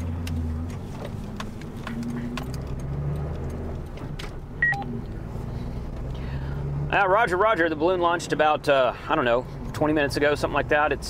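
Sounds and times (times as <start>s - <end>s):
vehicle engine and road noise: 0.0s - 11.0s
two-tone electronic beep: 4.6s - 4.9s.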